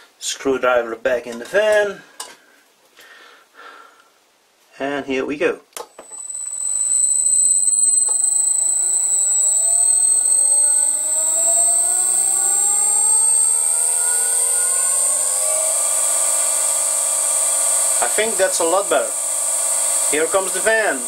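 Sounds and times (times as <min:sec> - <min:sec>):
electric motor rising in pitch: 0:06.0 - 0:21.0
high-pitched whistle: 0:06.0 - 0:21.0.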